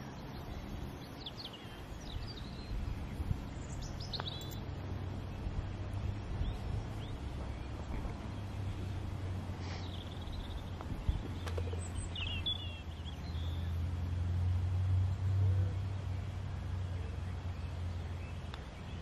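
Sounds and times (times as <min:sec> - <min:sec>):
high bird chirps: 0:00.0 - 0:04.7, 0:09.8 - 0:13.8
steady low rumble: 0:00.0 - 0:19.0.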